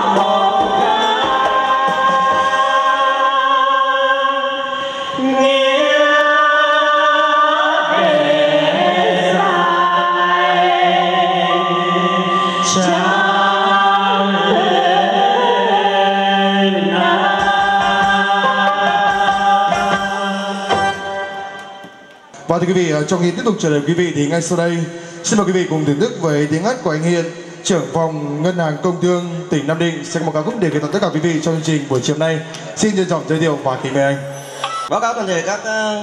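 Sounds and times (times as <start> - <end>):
person singing long held notes: 0.0 - 21.8
musical accompaniment: 0.0 - 22.6.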